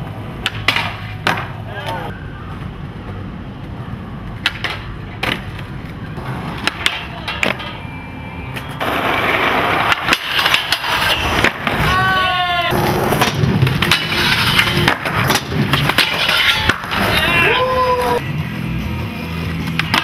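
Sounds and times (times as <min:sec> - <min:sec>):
skateboard wheels rolling on concrete: 0:00.0 - 0:20.0
skateboard clacks: 0:00.3 - 0:02.1, 0:04.3 - 0:07.8, 0:08.6 - 0:18.2, 0:19.6 - 0:20.0
skateboard scraping along rail: 0:08.6 - 0:18.2.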